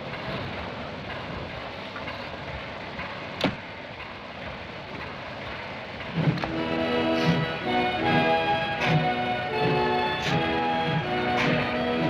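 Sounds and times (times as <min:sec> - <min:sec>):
train carriages rumbling: 0:00.0 - 0:12.0.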